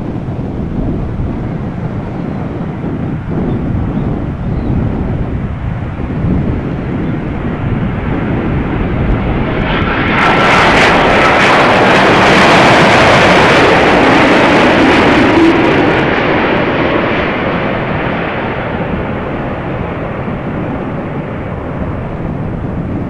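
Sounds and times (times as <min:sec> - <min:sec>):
jet airliner passing overhead: 0:00.0 - 0:23.0.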